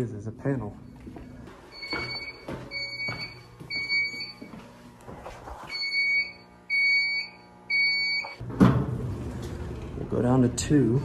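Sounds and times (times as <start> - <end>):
pulsing alarm buzzer beeps: 1.7 - 4.6, 5.7 - 8.4.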